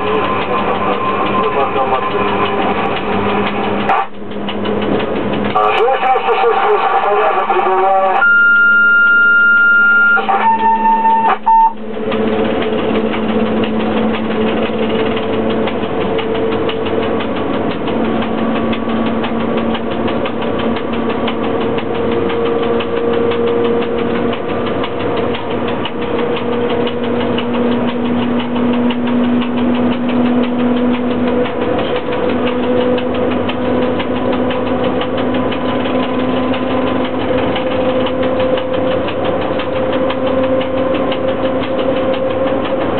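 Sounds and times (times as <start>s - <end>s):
locomotive hum and whine: 0.0s - 42.9s
train cab rattle and ticking: 0.0s - 42.9s
high beep: 8.2s - 11.8s.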